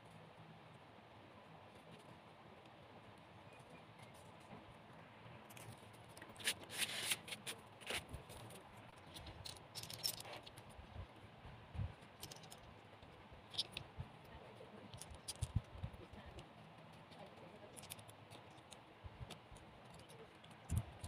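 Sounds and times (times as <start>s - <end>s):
light clicks and taps of craft pieces: 13.5s - 21.0s.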